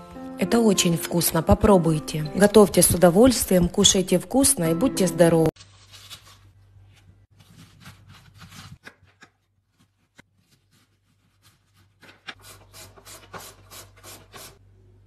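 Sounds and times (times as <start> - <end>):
knife crunching through cabbage: 5.6 - 12.1.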